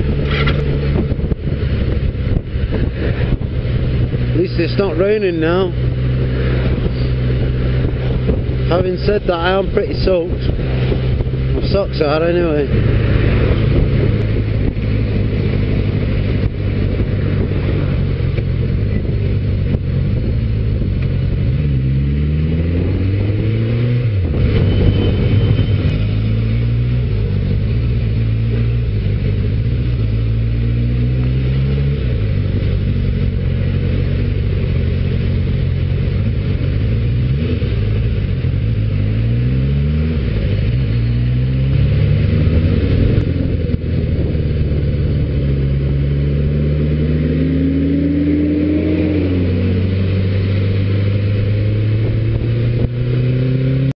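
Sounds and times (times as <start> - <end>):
motorcycle engine accelerating: 0.0 - 53.9
wind and road noise: 0.0 - 53.9.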